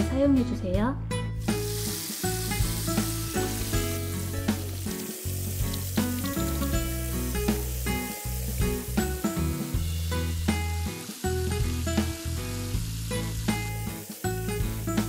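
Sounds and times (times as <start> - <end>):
background music: 0.0 - 15.0
tap water running into sink: 1.4 - 9.8.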